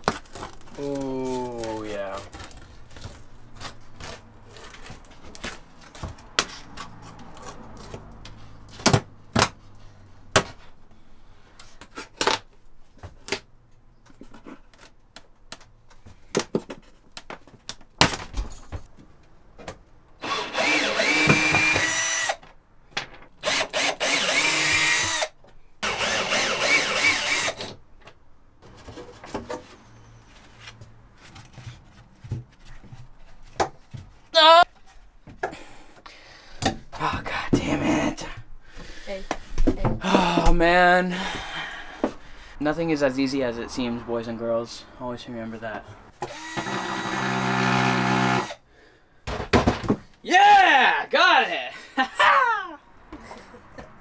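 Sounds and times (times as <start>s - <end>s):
power drill: 20.2s - 22.4s, 23.4s - 27.7s, 46.2s - 48.6s.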